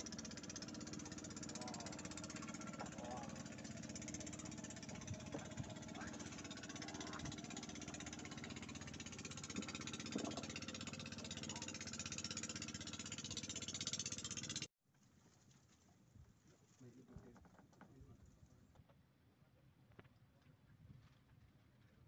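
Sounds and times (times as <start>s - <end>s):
motor droning: 0.0s - 14.7s.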